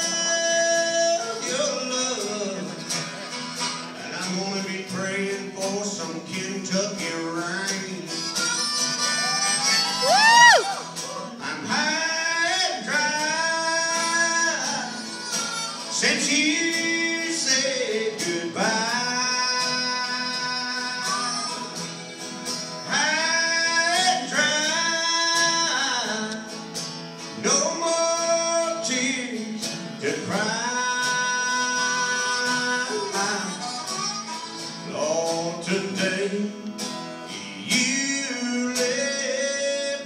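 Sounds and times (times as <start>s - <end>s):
acoustic guitar: 0.0s - 40.0s
harmonica solo: 2.8s - 4.0s, 8.0s - 10.8s, 14.6s - 16.0s, 19.5s - 23.7s, 31.2s - 35.0s.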